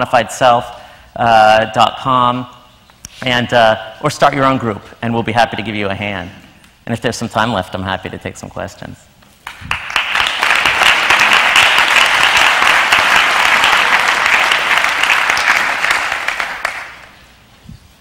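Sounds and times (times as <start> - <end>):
audience applauding: 9.4 - 17.2.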